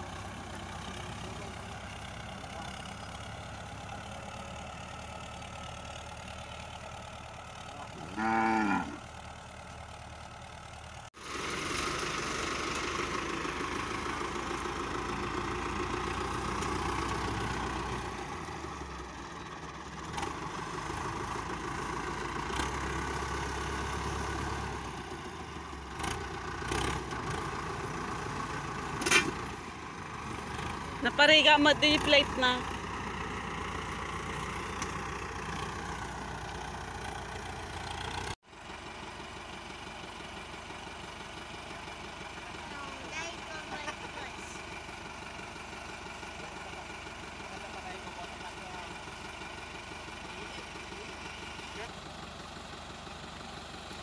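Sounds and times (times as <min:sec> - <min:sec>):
tractor engine running: 0:00.0 - 0:54.0
cow mooing: 0:08.0 - 0:09.0.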